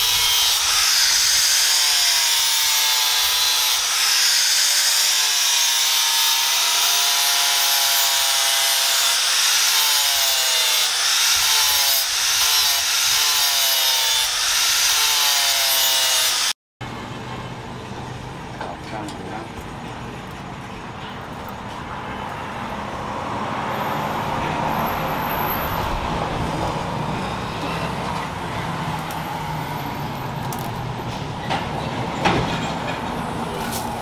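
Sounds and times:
angle grinder grinding steel: 0.0 - 16.5.

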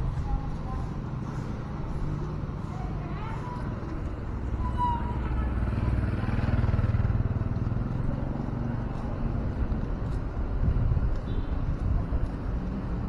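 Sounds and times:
motorcycle passing by: 0.0 - 10.9
street noise: 0.0 - 13.0.

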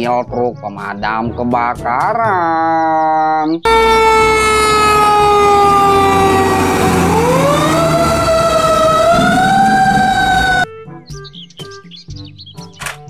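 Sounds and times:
fire truck siren wailing: 3.7 - 10.7.

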